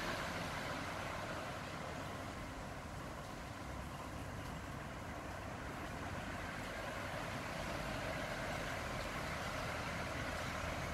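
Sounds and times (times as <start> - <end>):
heavy rain falling: 0.0 - 10.9.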